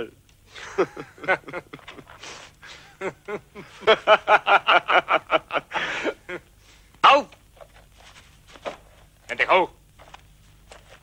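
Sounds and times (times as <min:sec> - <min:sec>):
men laughing: 0:00.5 - 0:06.6.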